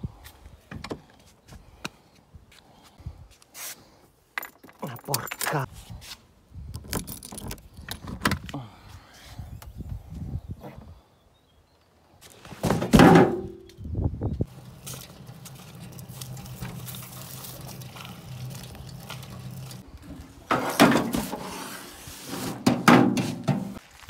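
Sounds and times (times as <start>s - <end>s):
wheelbarrow rolling over paving: 14.5s - 23.8s.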